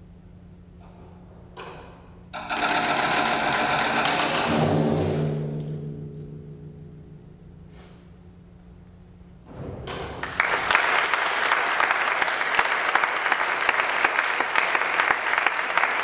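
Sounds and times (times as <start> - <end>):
fast drum roll: 2.4 - 5.8.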